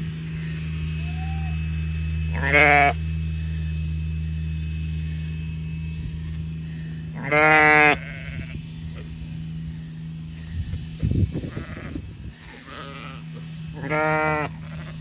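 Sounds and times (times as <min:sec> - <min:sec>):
vehicle engine humming: 0:00.0 - 0:15.0
sheep bleating: 0:02.3 - 0:03.0, 0:07.2 - 0:08.6, 0:11.5 - 0:15.0.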